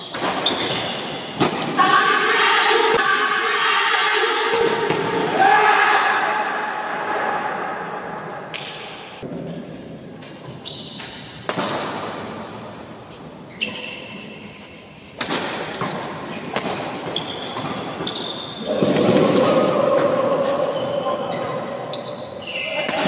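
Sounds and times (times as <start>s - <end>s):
shoes squeaking on court floor: 0.0s - 1.4s, 9.7s - 15.1s, 15.7s - 19.2s, 20.4s - 23.0s
rackets hitting shuttlecock: 11.0s - 12.3s, 15.2s - 20.6s.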